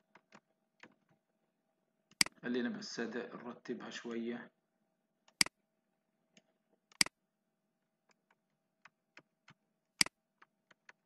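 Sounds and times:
computer mouse clicks: 2.1 - 2.4, 5.3 - 5.6, 6.4 - 7.2, 8.1 - 11.0.

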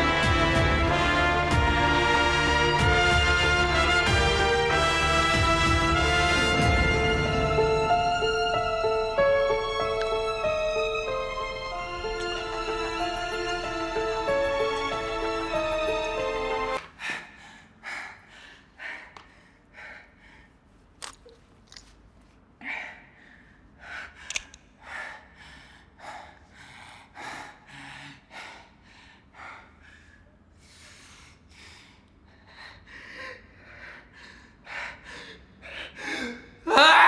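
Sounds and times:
person breathing hard: 16.9 - 20.9, 22.6 - 36.7.

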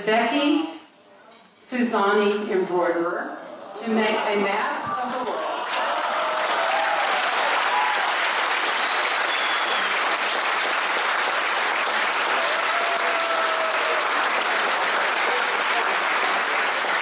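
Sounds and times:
audience applauding: 5.0 - 17.0.

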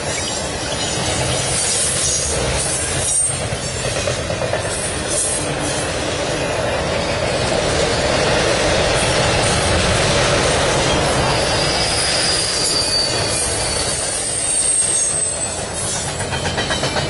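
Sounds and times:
train wheels rumbling on rail: 0.0 - 17.0.

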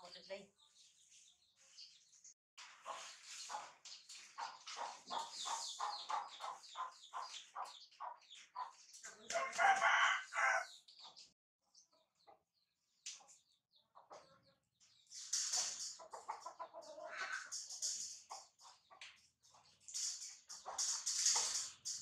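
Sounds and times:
rooster clucking: 9.1 - 10.6, 16.0 - 17.5
rooster crowing: 9.3 - 10.7.

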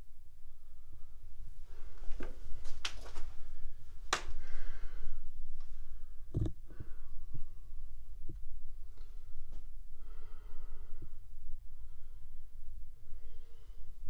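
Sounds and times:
steady low rumble: 0.0 - 14.0
person breathing: 0.4 - 8.2, 8.8 - 14.0
sharp clicks and knocks: 6.3 - 6.6.

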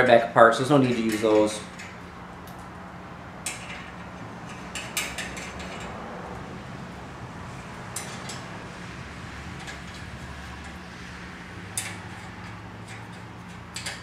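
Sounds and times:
steady low hum: 0.0 - 14.0
metal nuts and washers clinking: 0.6 - 2.0, 3.4 - 6.1, 7.9 - 8.6, 9.6 - 10.8, 11.7 - 14.0.

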